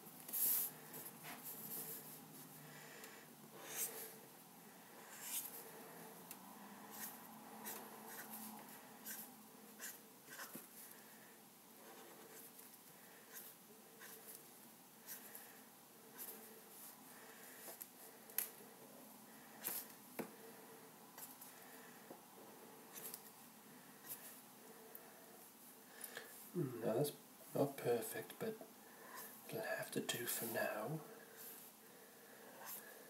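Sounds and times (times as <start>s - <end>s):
marker scratching on paper: 3.6s - 4.0s, 5.0s - 5.6s, 6.9s - 10.6s, 13.3s - 14.4s, 15.0s - 15.3s.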